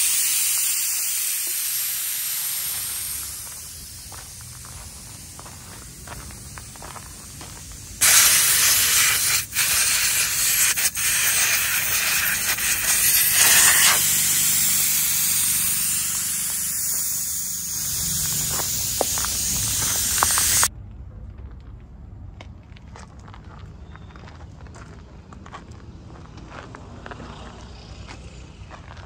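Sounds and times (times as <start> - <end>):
air hissing out of tyre valve: 0.0 - 20.7.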